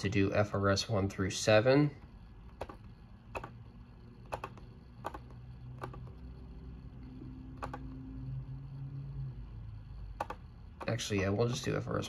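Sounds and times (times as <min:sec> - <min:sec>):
faint low hum: 0:00.0 - 0:12.0
computer mouse button clicking: 0:02.6 - 0:03.6, 0:04.2 - 0:06.1, 0:07.6 - 0:07.8, 0:10.2 - 0:10.9.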